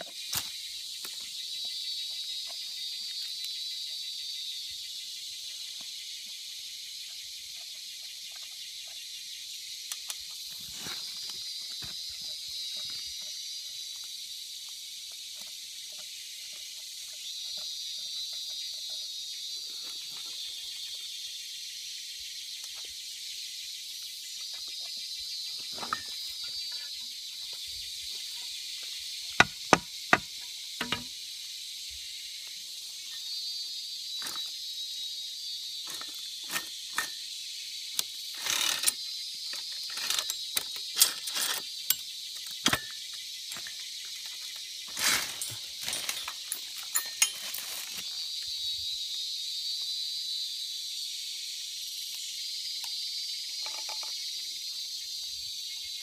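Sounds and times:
high insect chorus: 0.0s - 56.0s
sharp clicks and knocks: 29.4s - 31.1s.

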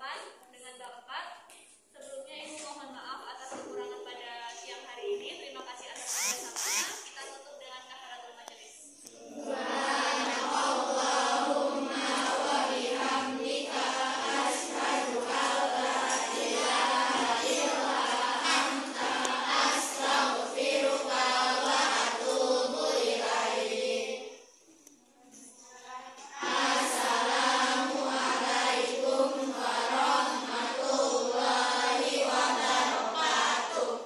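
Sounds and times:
choir chanting: 9.1s - 24.5s, 26.3s - 34.0s.

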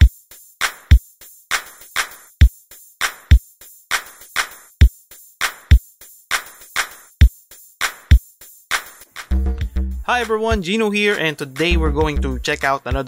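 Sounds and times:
drum machine beat: 0.0s - 13.0s
electronic music: 9.3s - 13.0s.

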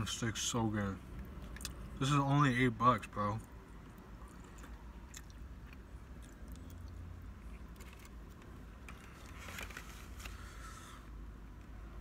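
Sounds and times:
low steady hum: 0.0s - 12.0s
person chewing food: 3.8s - 8.4s.

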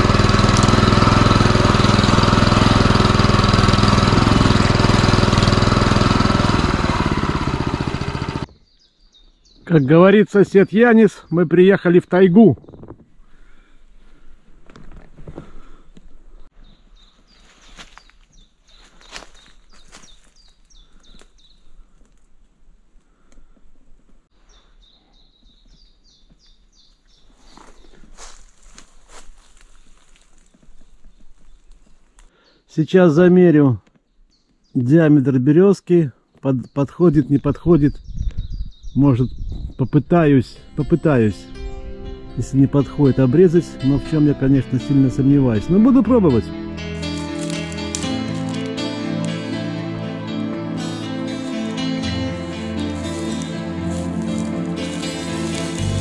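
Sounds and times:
tractor petrol engine running: 0.0s - 8.5s, 44.8s - 49.4s, 51.4s - 56.0s
songbird chirping: 8.4s - 13.4s, 15.9s - 21.9s, 24.3s - 56.0s
footstep: 17.4s - 21.3s, 47.0s - 48.8s, 51.4s - 56.0s.

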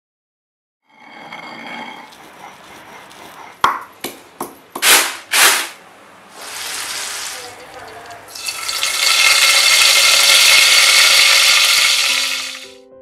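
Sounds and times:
pestle pounding in stone mortar: 2.1s - 5.7s.

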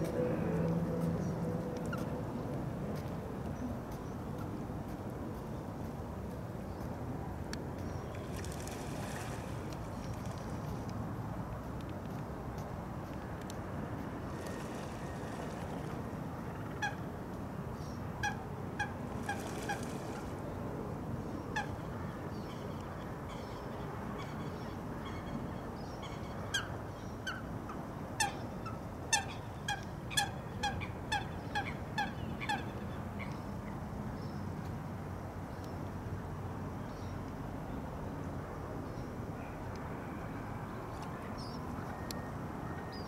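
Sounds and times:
waterbirds calling: 17.8s - 20.6s.

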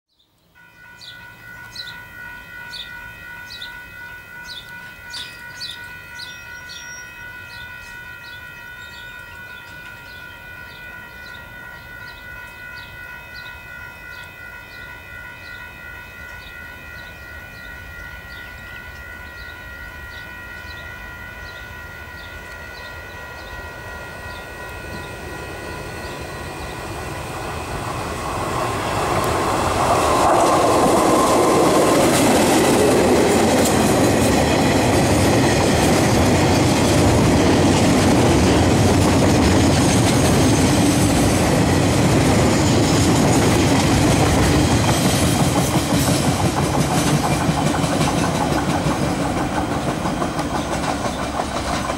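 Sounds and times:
level crossing bells ringing: 0.6s - 39.0s
diesel locomotive engine: 0.8s - 51.9s
train wheels rumbling: 0.8s - 51.9s.

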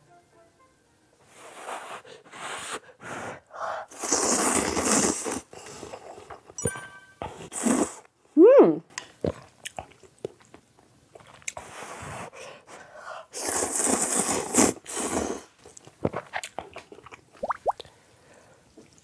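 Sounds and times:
person slurping noodles: 1.4s - 6.2s, 7.5s - 8.0s, 13.3s - 15.6s
chewing with wet mouth clicks: 9.0s - 11.6s, 15.6s - 17.9s.

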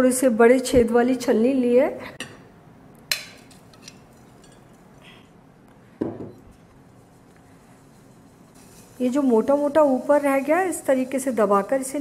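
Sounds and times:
flour rustling into sieve: 6.9s - 12.0s.

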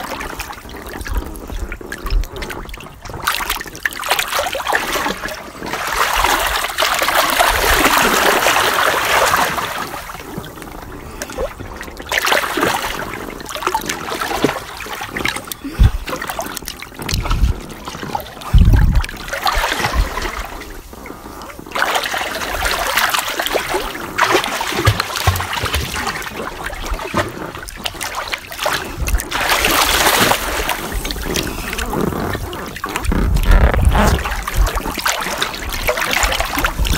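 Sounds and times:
short deep thumps: 18.5s - 19.1s
person splashing in pool water: 21.7s - 36.9s.

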